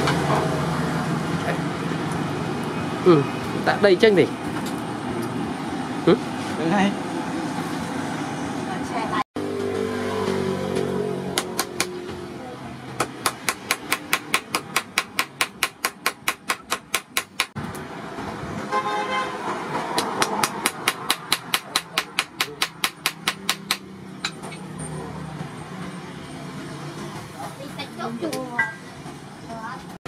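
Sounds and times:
hammer striking hot steel on anvil: 13.0 - 17.6, 20.0 - 24.6.

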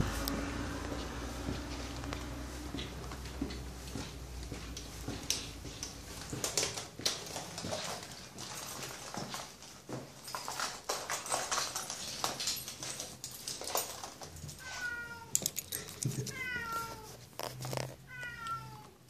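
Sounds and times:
cat meowing: 14.6 - 15.5, 16.2 - 17.2, 18.0 - 19.0
sharp clicks and rattles: 15.3 - 16.4.

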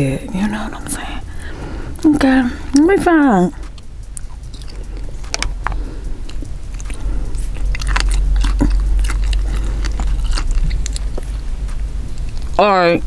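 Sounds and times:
steady low hum: 0.0 - 13.0
chewing and biting: 3.6 - 12.6.

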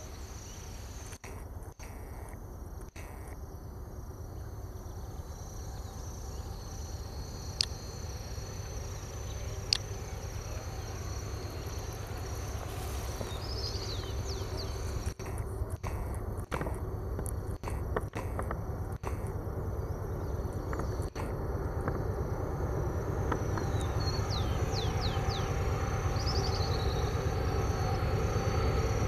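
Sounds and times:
insects chirping: 0.0 - 29.0
freight train locomotive rumble: 4.5 - 29.0
sharp clicks: 15.0 - 19.4, 20.4 - 22.0.

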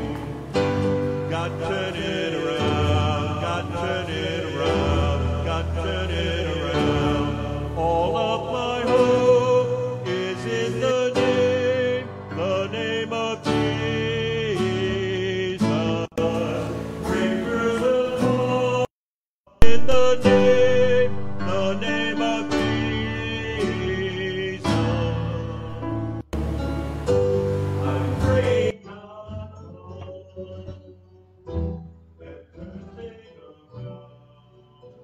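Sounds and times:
acoustic guitar: 0.0 - 18.9, 19.6 - 35.0
person singing: 1.2 - 18.9, 19.6 - 26.5, 27.8 - 31.1
loud pop: 19.6 - 23.8.

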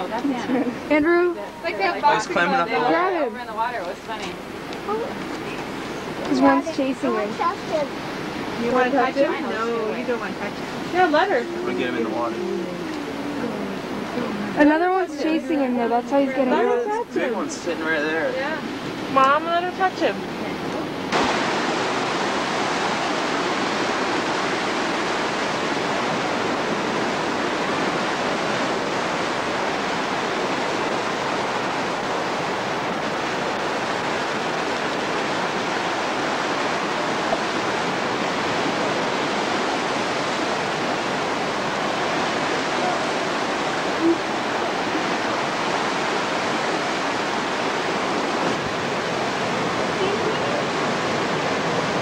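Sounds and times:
surf churning against rocks: 0.0 - 52.0.

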